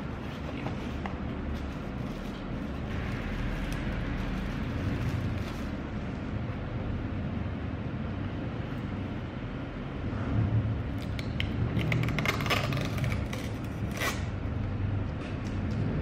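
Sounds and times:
plastic film peeling: 1.6 - 5.9, 11.0 - 14.4.

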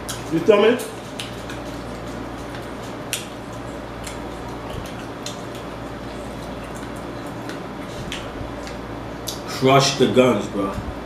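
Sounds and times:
chewing fried chicken: 0.0 - 9.5
steady low hum: 0.0 - 11.0.

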